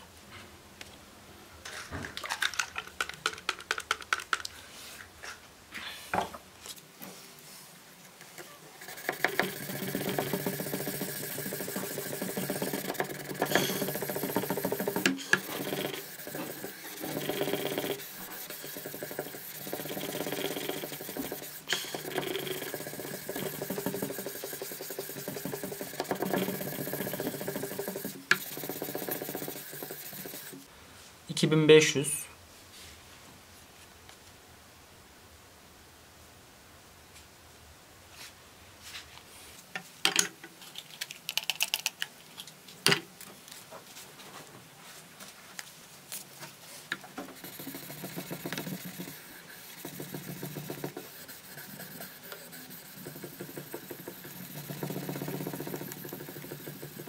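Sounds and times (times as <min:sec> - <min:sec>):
sandpaper rubbing steel: 0:08.8 - 0:30.6, 0:47.4 - 0:57.0.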